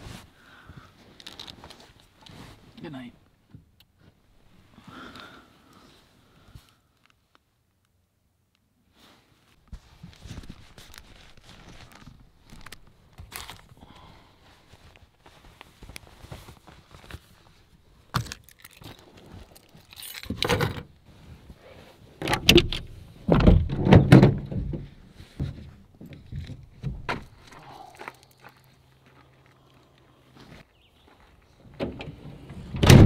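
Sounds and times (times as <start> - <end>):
sleeping bag rustling: 8.9 - 18.0
thumps: 22.2 - 27.4.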